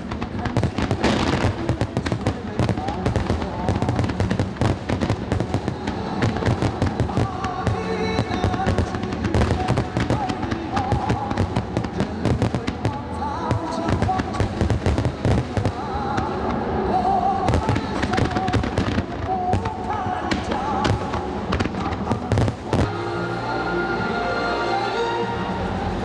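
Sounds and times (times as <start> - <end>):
fireworks bursting with bangs: 0.0 - 23.0.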